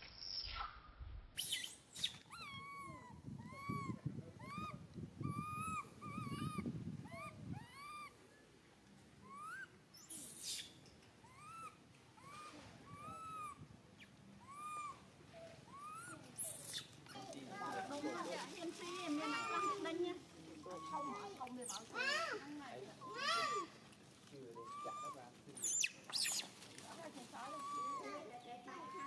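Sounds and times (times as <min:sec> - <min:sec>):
baby macaque crying: 0:01.5 - 0:08.2, 0:09.2 - 0:10.6, 0:11.2 - 0:13.6, 0:14.4 - 0:15.1, 0:15.7 - 0:17.0, 0:18.8 - 0:20.0, 0:20.6 - 0:22.4, 0:23.0 - 0:23.8, 0:24.6 - 0:26.5, 0:27.4 - 0:29.0.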